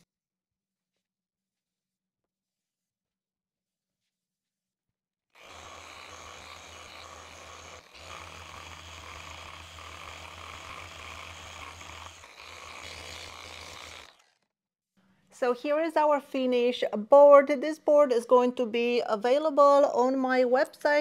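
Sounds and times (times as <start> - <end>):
electric polisher motor running: 5.4 - 14.4.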